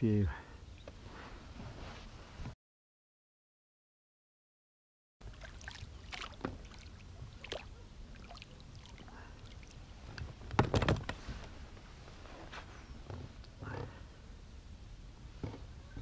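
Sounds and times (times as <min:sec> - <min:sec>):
water splashing and sloshing: 0:05.2 - 0:11.4.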